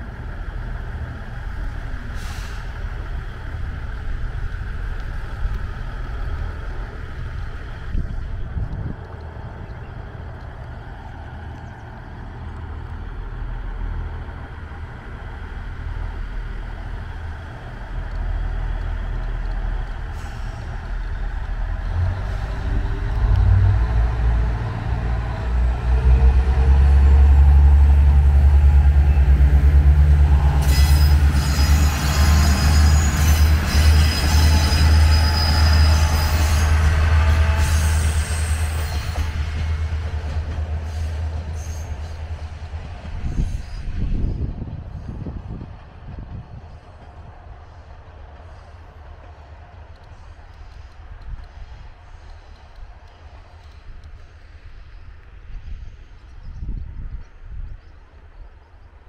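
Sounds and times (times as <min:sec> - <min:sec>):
diesel train engine rumble: 0:00.0 - 0:59.0
train wheels squealing on rails: 0:02.0 - 0:03.0, 0:19.9 - 0:24.1, 0:28.9 - 0:49.0.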